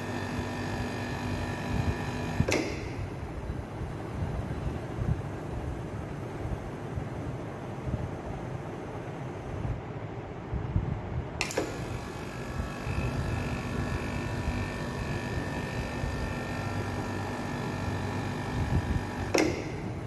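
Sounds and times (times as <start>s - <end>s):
air conditioner compressor humming: 0.0s - 20.0s
air conditioner switch click: 2.4s - 3.2s, 11.4s - 12.0s, 19.1s - 20.0s.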